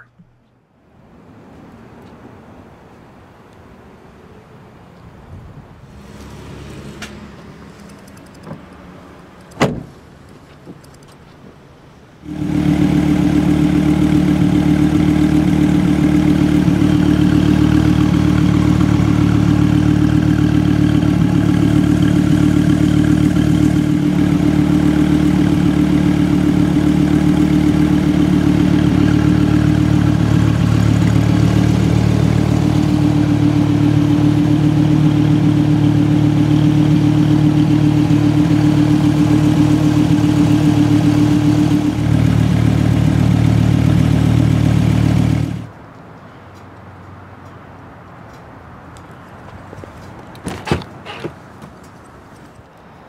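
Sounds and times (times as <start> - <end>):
car engine idling: 12.2 - 45.7.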